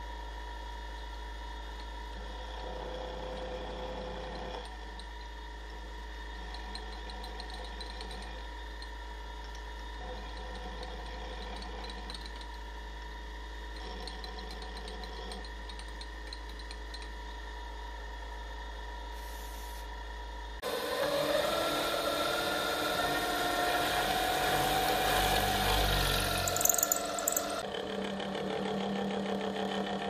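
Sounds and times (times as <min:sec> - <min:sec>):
milling machine cutting metal: 0:20.6 - 0:27.7.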